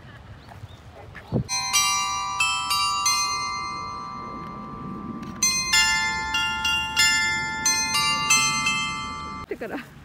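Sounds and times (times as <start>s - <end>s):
bells chiming a tune: 1.5s - 9.5s.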